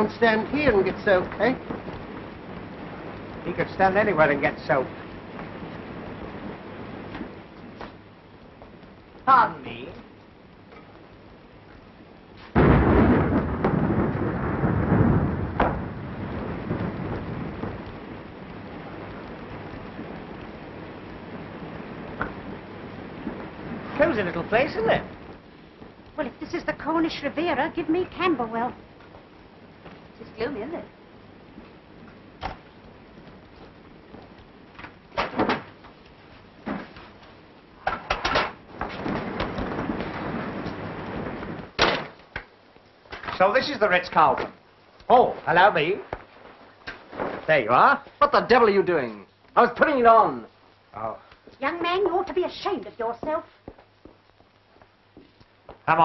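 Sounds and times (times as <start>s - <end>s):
thunder rolling: 0.0s - 10.1s, 12.6s - 35.9s, 36.5s - 44.6s
steady hiss: 0.0s - 56.0s
steady rain: 0.0s - 56.0s.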